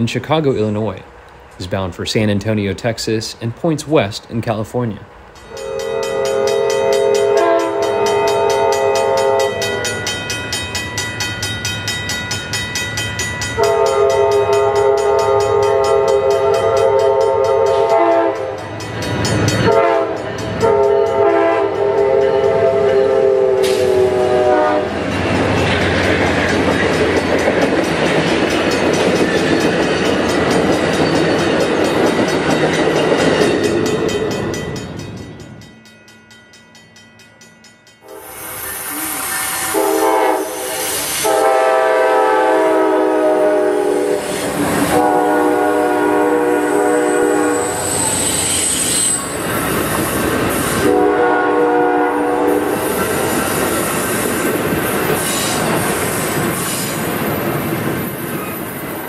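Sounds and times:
train wheel clatter: 0:05.3 - 0:24.2, 0:24.9 - 0:35.8, 0:47.5 - 0:51.1, 0:52.5 - 0:59.0
model train chime horn: 0:05.4 - 0:25.0, 0:34.1 - 0:49.4, 0:50.8 - 0:53.1.

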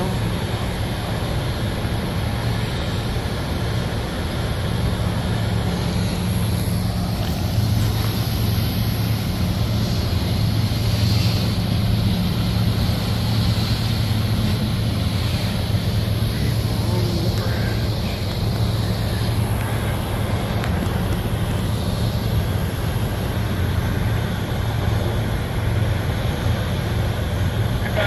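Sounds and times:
low steady hum: 0:00.0 - 0:28.0
steel wheels rumbling on rail: 0:00.0 - 0:28.0.

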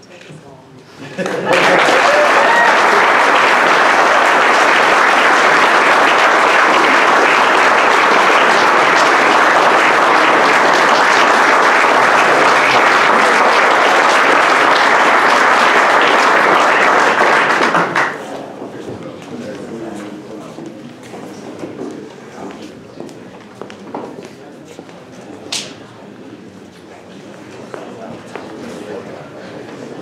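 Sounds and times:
audience applauding: 0:01.2 - 0:18.3.

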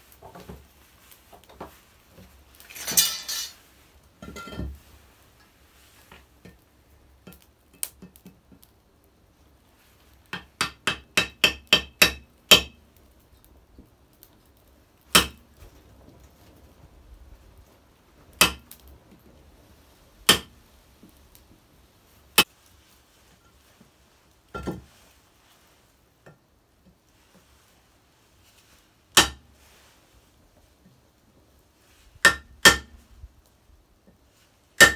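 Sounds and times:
scraping rustle of tools: 0:00.0 - 0:06.7, 0:26.9 - 0:32.2
hammer striking chisel: 0:10.4 - 0:12.8, 0:15.2 - 0:15.4, 0:29.2 - 0:29.4, 0:32.2 - 0:32.9.

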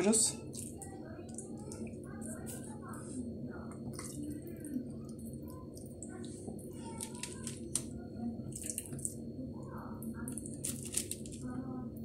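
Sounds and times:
low background hum: 0:00.0 - 0:12.0
wet fish squishes: 0:03.7 - 0:09.2.

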